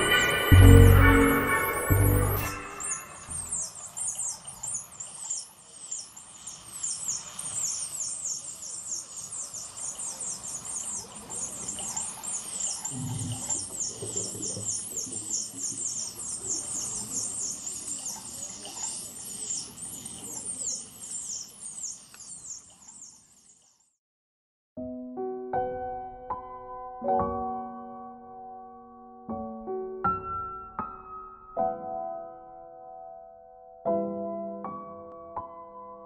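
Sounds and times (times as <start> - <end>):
dolphins whistling and chirping: 0.0 - 23.3.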